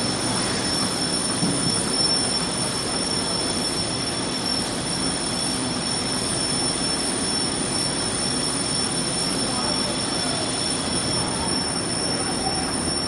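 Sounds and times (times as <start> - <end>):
high whine: 0.0 - 13.0.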